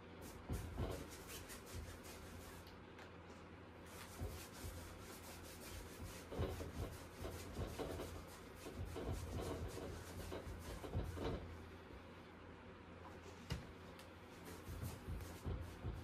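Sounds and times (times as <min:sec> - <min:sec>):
paintbrush scrubbing on canvas: 0:00.2 - 0:02.6, 0:03.9 - 0:11.5, 0:14.3 - 0:16.0.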